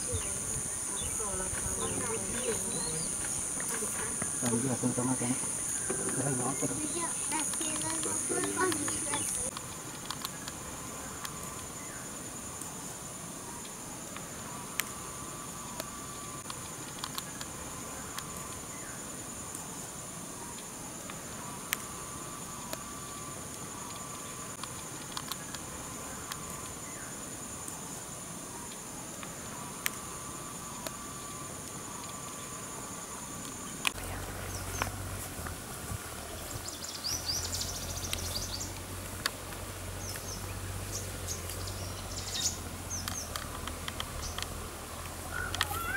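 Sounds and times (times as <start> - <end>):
birds chirping: 0.0 - 12.2, 29.7 - 45.9
insect chorus drone: 0.0 - 45.9
sharp clicks: 7.3 - 10.6, 15.7 - 17.5, 23.8 - 25.6, 43.0 - 45.7.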